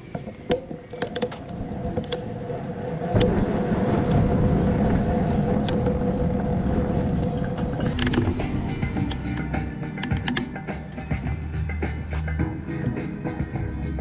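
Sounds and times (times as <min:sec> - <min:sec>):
machine running with rumble: 0:01.6 - 0:10.4
clicks: 0:09.0 - 0:10.6.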